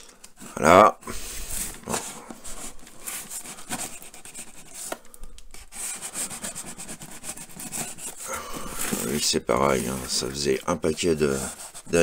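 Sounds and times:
knife scraping packing tape: 3.0s - 5.0s, 5.6s - 12.0s.

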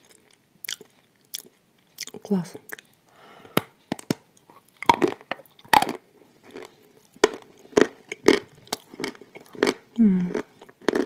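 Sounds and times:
crunching wafer bars: 3.9s - 11.0s.

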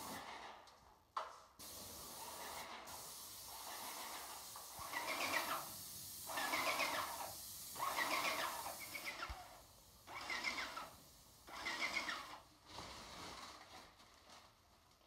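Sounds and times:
paint spray gun hissing: 1.6s - 12.4s.

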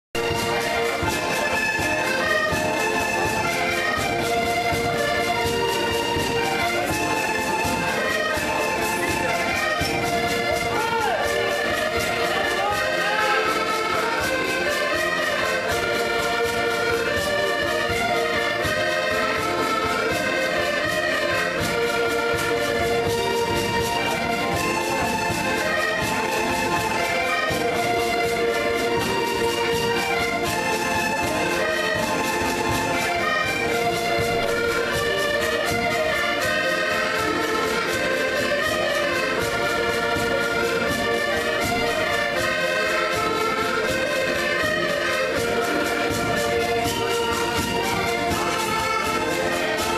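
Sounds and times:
accordions playing a tune: 0.0s - 49.9s.

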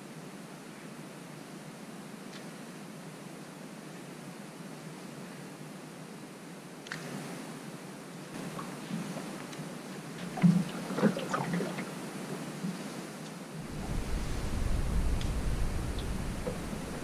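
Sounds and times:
wind: 0.0s - 17.0s
water lapping around boat: 8.4s - 17.0s
wind buffeting microphone: 13.6s - 17.0s.

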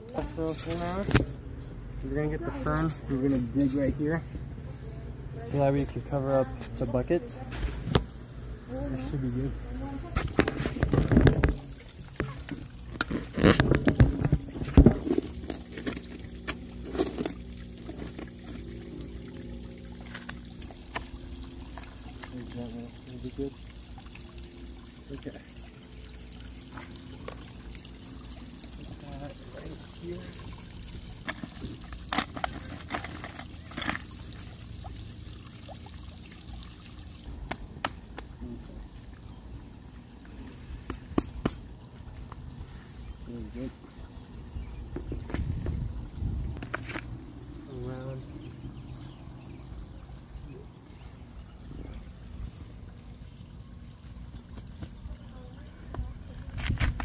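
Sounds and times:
water trickling: 0.0s - 57.0s
scraping and scooping soil: 12.2s - 19.3s.

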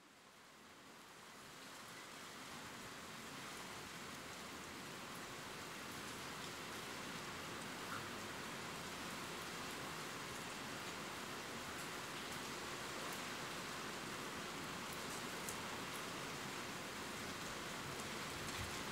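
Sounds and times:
steady rain falling: 0.0s - 18.9s.

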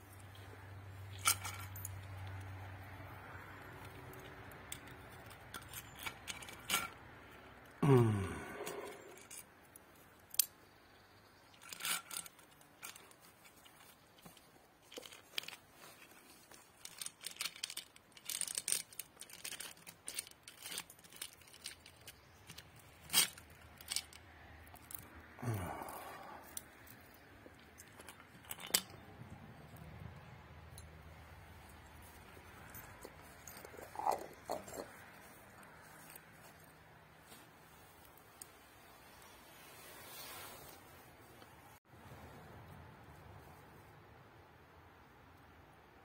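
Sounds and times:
metal clicks and rattles: 1.1s - 2.5s, 3.6s - 7.0s, 11.5s - 25.1s, 26.4s - 31.0s, 31.8s - 36.6s.

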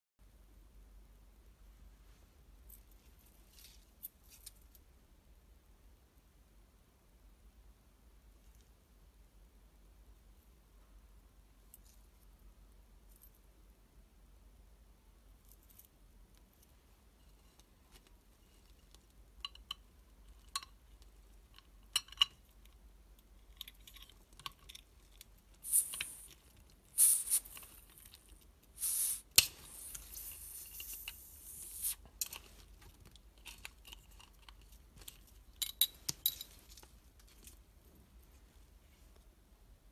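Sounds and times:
gas hissing from bottle: 25.6s - 27.8s, 28.8s - 32.0s.

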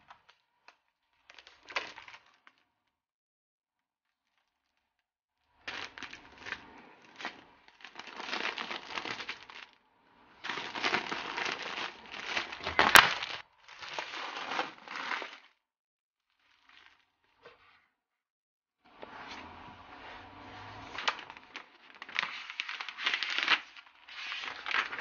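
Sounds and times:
plastic wrapping crinkling: 1.2s - 2.6s, 5.7s - 9.7s, 10.4s - 15.6s, 21.0s - 25.0s.

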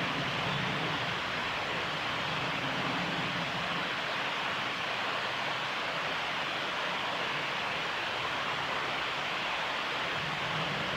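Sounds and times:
steady rushing noise: 0.0s - 10.9s.

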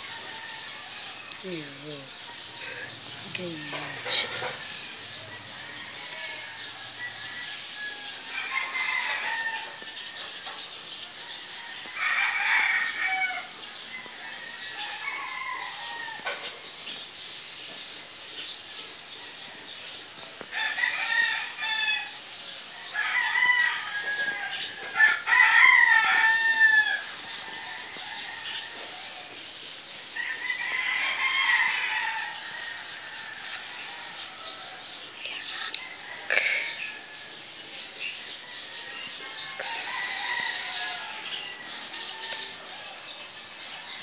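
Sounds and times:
rooster crowing: 2.2s - 10.3s, 11.3s - 16.4s, 20.5s - 22.2s, 22.8s - 29.4s, 30.2s - 34.9s, 38.8s - 43.2s.

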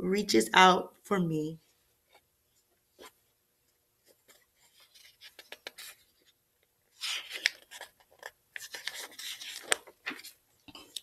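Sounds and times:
page turning rustle: 2.1s - 3.2s, 4.0s - 11.0s
fingers tapping paper: 5.2s - 5.9s.

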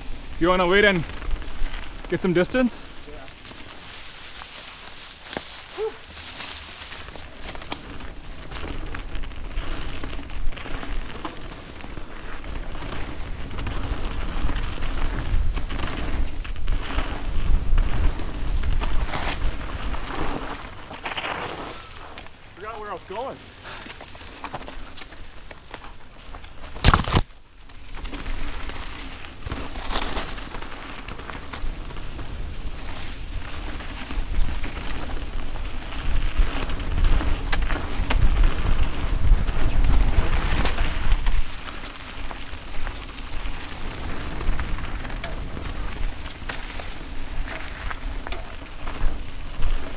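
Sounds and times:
bike clicks and rattles: 0.0s - 49.9s
bike tyres rolling over dirt: 0.0s - 49.9s
wind rumbling on microphone: 7.0s - 20.8s, 28.0s - 49.9s.

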